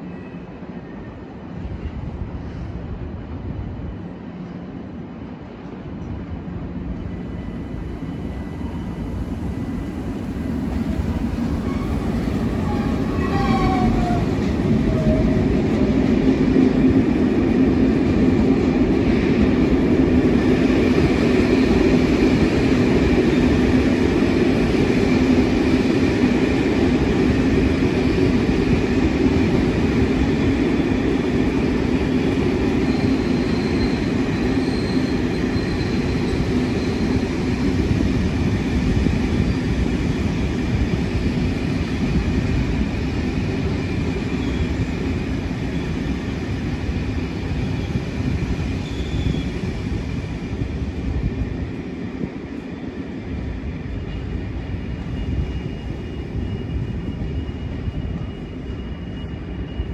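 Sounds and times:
train rumble and hum: 0.0 - 59.9
train brake squeal: 32.8 - 37.4, 43.9 - 44.9, 48.8 - 49.6, 53.9 - 59.9.

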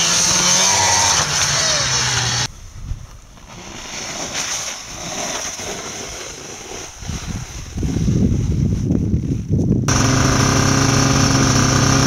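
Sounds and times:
board scraping over snow: 3.3 - 12.0
wind on microphone: 6.7 - 9.9.

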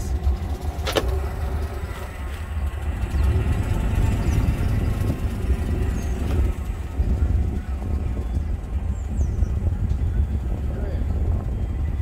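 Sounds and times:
car engine rumble: 0.0 - 12.0
road noise: 0.0 - 12.0.

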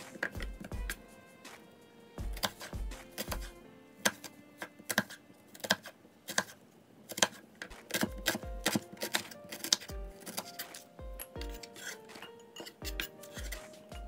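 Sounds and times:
light tune of held notes: 8.1 - 14.0.

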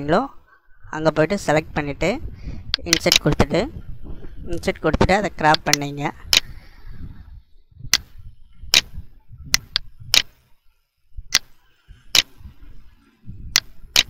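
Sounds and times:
computer mouse clicking: 2.7 - 3.4, 9.5 - 10.4, 12.1 - 12.3, 13.6 - 14.0.

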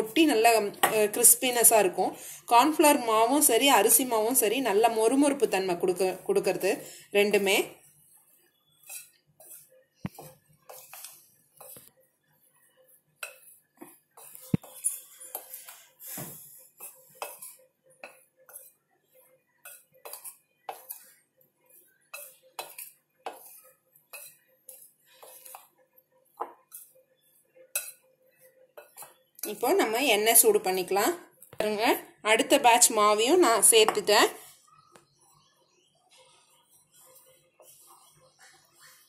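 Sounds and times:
spoon scraping in mixing bowl: 5.9 - 30.6, 36.2 - 39.0.

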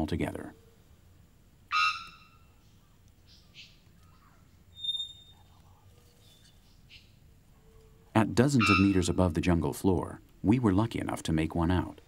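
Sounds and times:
harsh bird calls: 1.7 - 7.2, 8.0 - 9.3.

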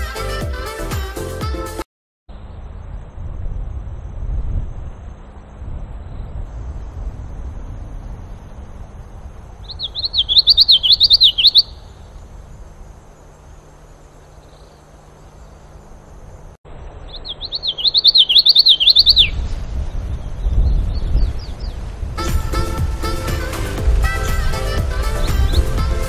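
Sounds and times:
low rumble: 2.3 - 10.0
bird singing: 9.6 - 21.8, 24.2 - 25.8.

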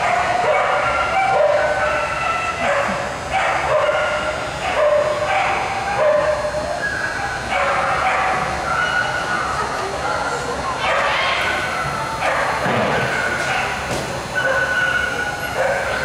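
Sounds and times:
dog barking: 0.0 - 6.5, 7.5 - 9.2, 12.2 - 13.8, 14.4 - 16.0.

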